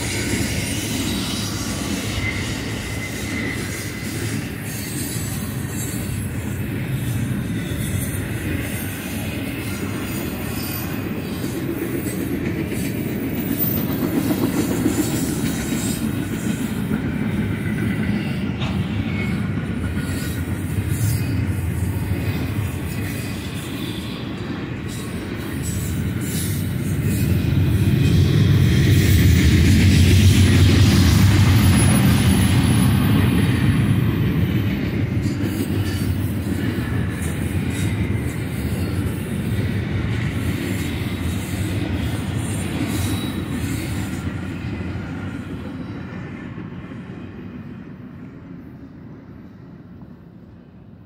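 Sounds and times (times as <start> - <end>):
train wheels rumbling on rails: 0.0 - 51.0.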